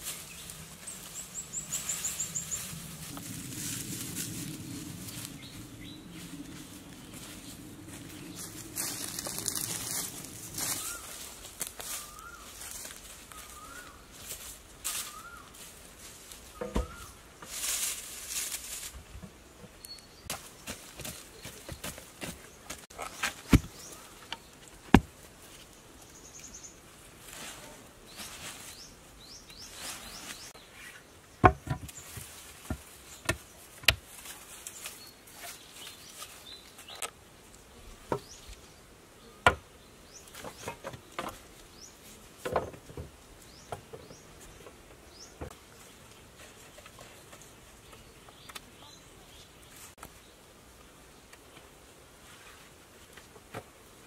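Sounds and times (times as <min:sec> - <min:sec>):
wooden poles knocking: 0:16.6 - 0:17.0, 0:31.4 - 0:31.9.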